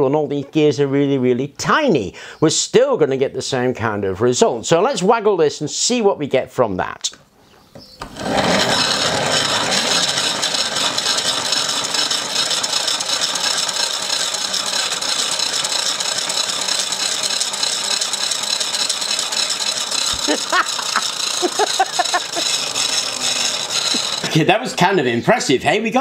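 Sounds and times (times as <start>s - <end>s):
plastic gears whirring: 8.0s - 24.4s.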